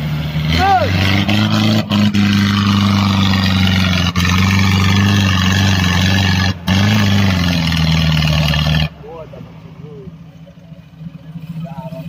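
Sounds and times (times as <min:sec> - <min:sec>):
engine running at high revs: 0:00.0 - 0:09.4.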